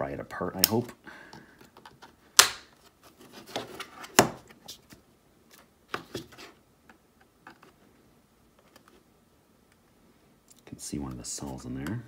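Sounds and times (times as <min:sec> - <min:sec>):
sharp loud plastic cracks: 0:02.4 - 0:02.7.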